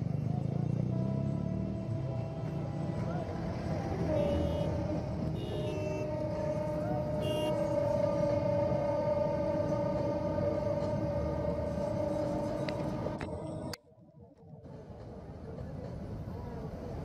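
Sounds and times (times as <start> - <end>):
rumble of passing train: 0.0 - 17.0
train horn long note: 0.9 - 3.1, 4.0 - 13.2.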